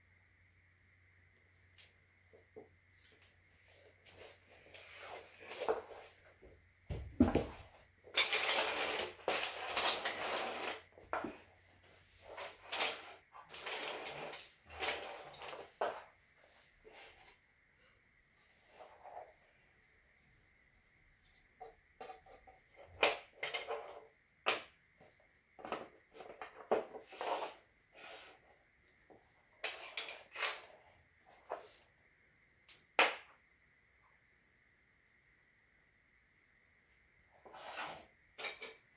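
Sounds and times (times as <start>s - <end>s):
shuffling on laminate floor: 2.9s - 7.9s
wooden track pieces scraping: 7.4s - 11.4s, 12.2s - 16.0s, 25.6s - 28.4s.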